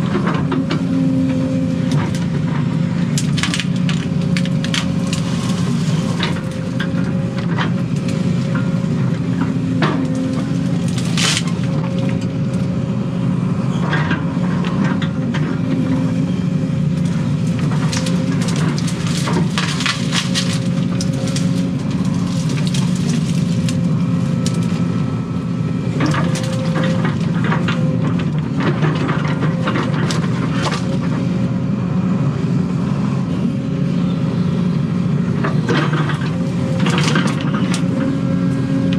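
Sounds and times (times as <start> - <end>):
excavator engine running: 0.0 - 38.9
brush cracking and snapping: 1.8 - 12.7, 16.9 - 31.3, 35.5 - 38.2.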